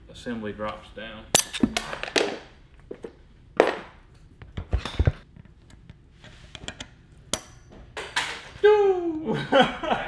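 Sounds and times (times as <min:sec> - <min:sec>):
sharp metal clack: 0:01.4 - 0:01.8.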